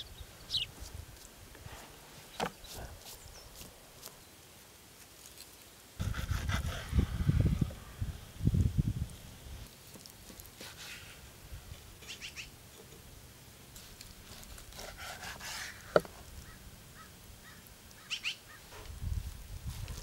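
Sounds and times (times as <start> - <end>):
knife slicing on cutting board: 14.8 - 16.0.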